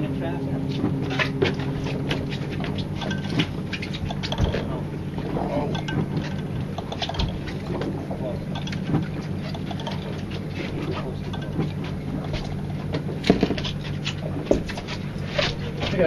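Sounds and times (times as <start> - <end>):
boat engine running: 0.0 - 16.0
sharp knocks: 0.8 - 10.2.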